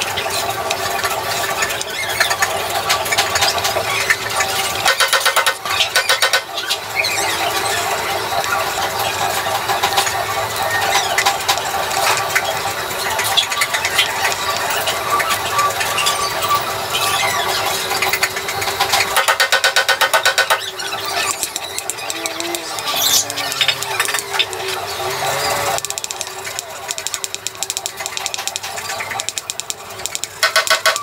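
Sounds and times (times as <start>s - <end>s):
chalk squeaking on chalkboard: 18.9s - 28.6s.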